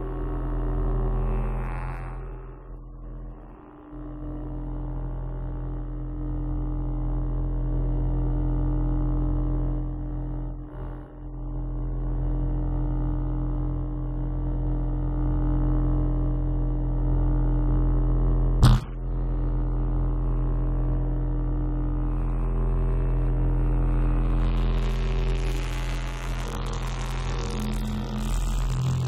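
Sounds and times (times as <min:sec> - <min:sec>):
sharp click: 0:18.6 - 0:19.0
synthesizer drone: 0:23.9 - 0:29.0.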